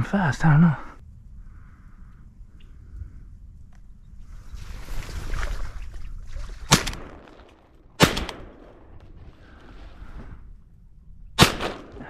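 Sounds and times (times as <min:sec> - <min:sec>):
shotgun shots: 0:06.7 - 0:09.0, 0:11.4 - 0:12.0.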